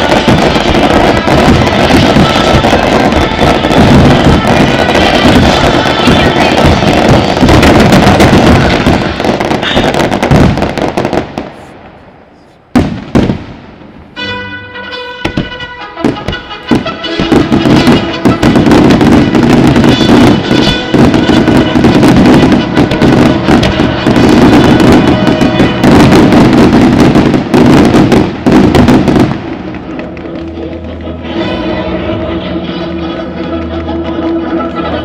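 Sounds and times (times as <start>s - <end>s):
fireworks bangs and crackling: 0.0s - 35.0s
music: 14.2s - 19.0s, 29.7s - 35.0s.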